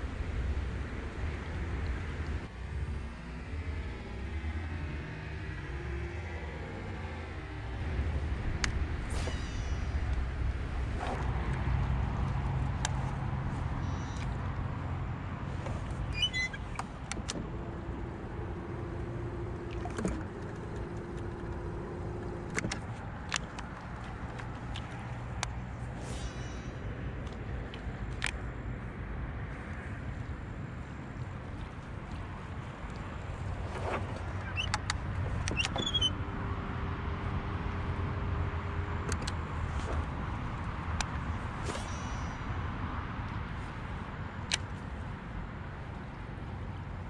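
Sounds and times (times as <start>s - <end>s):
low rumble: 0.0s - 16.2s
wind and water rumble: 0.0s - 47.0s.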